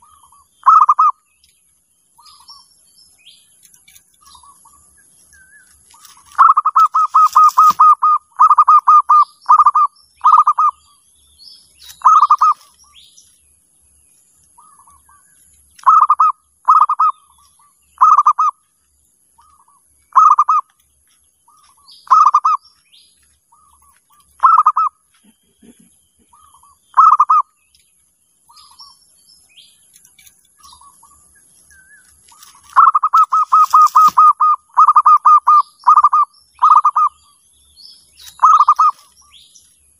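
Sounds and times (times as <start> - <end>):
dove cooing: 0.0 - 1.2, 6.0 - 10.8, 12.0 - 12.7, 15.8 - 17.3, 18.0 - 18.6, 20.1 - 20.7, 22.0 - 22.6, 24.4 - 27.5, 32.4 - 37.2, 38.3 - 39.1.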